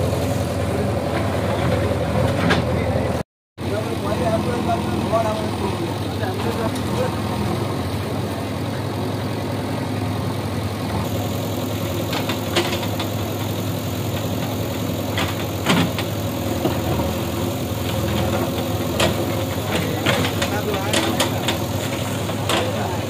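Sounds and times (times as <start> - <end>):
diesel engine running under load: 0.0 - 23.0.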